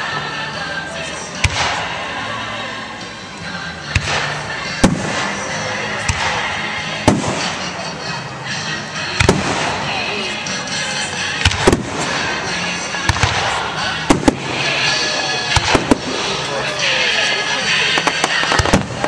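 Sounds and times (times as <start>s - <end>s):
fireworks bangs: 3.9s - 7.9s, 9.2s - 10.1s, 11.3s - 19.0s.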